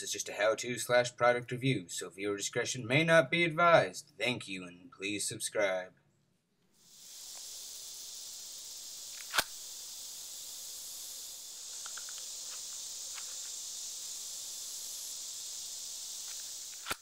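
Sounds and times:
steady high hiss: 6.7s - 17.0s
faint ticks: 7.2s - 17.0s
knife sheath click: 9.2s - 9.5s.

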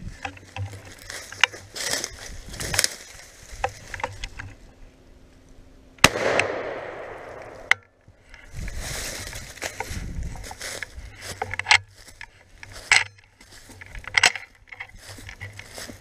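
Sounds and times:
rustling and gun handling: 0.0s - 4.8s, 6.0s - 16.0s
shotgun firing with echo: 6.0s - 7.6s.

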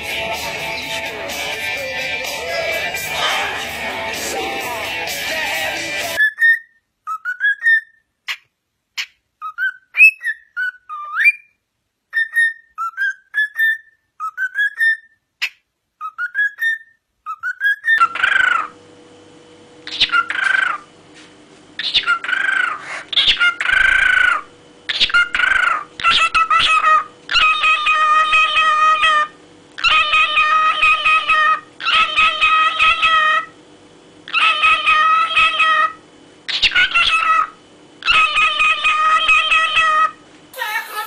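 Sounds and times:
steady background hum: 0.0s - 41.0s
cockatiels whistling: 9.4s - 11.5s, 12.2s - 15.1s.

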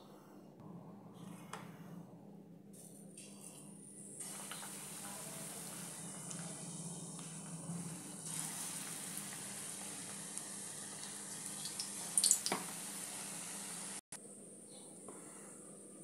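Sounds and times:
deep-frying sizzle in oil: 4.2s - 14.0s.

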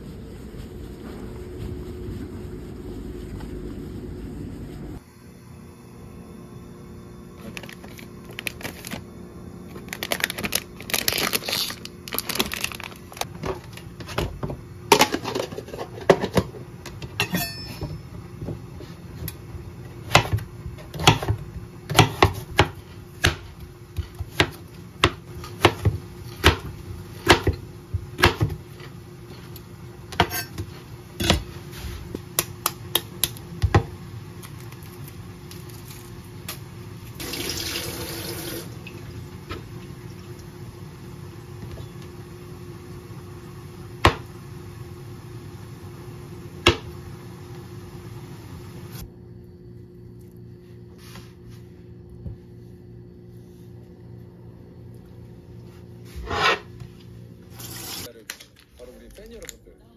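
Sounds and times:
plastic packets crinkling: 7.5s - 9.0s, 9.7s - 13.8s
knife chopping on cutting board: 20.1s - 27.6s, 28.2s - 28.6s.

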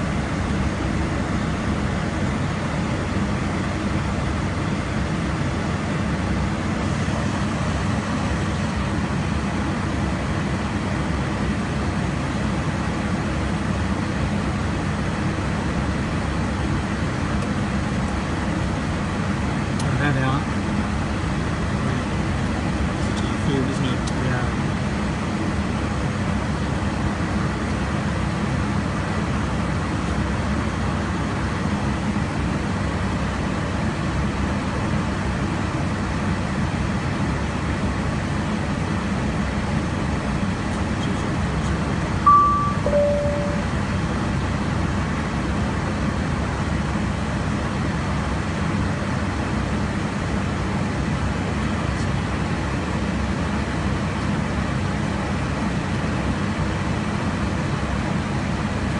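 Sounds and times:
jet cockpit air and engine noise: 0.0s - 58.9s
two-note beep: 42.3s - 43.8s.

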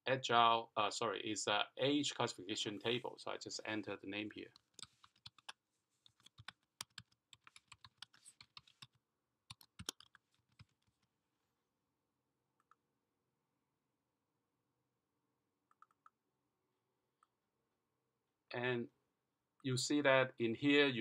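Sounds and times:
computer keyboard typing: 4.6s - 10.8s.

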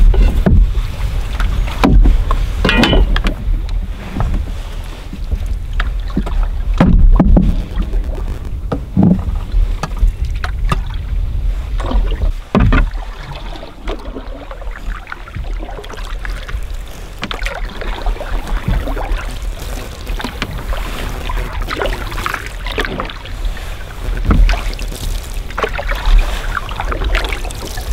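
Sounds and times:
hollow knocks against hull: 0.0s - 11.0s, 11.8s - 14.2s, 17.2s - 19.2s, 24.2s - 24.7s
paddle strokes in water: 0.0s - 27.9s
steady low rumble: 0.0s - 27.9s.

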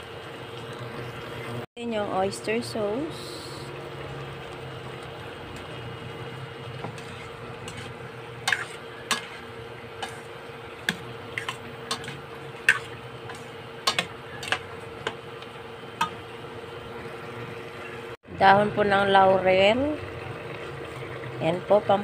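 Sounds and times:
steady hum: 0.0s - 22.0s
spoon scraping metal pot: 6.8s - 15.2s.

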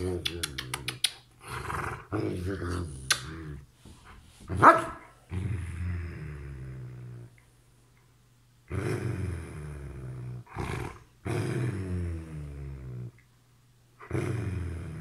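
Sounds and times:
dog grumbling groans: 5.3s - 7.4s, 8.7s - 13.2s, 14.0s - 15.0s.

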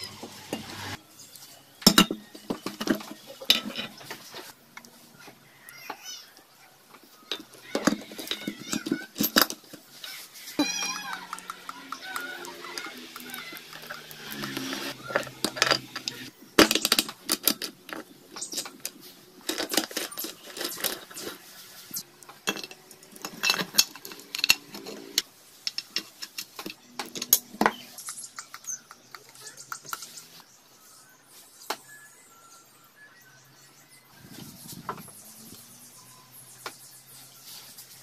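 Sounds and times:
metal parts clinking: 7.3s - 10.1s, 14.4s - 27.6s.

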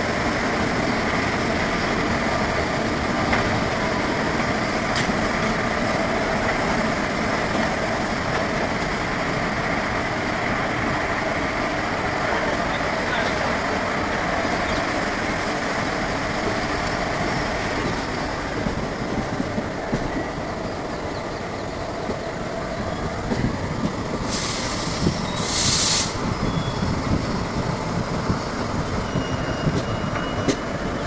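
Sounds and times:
train coaches rumbling past: 0.0s - 31.0s
short hisses: 24.3s - 26.2s.

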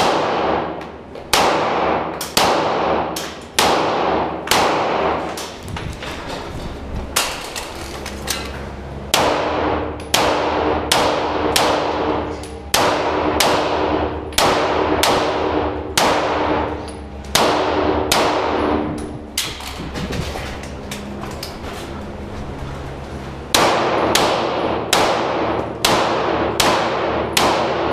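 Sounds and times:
handgun shots echoing: 23.6s - 27.9s.

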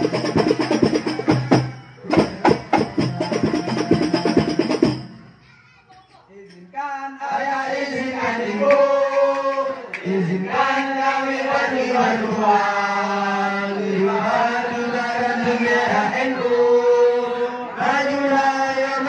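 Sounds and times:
men chanting together: 6.9s - 19.0s.

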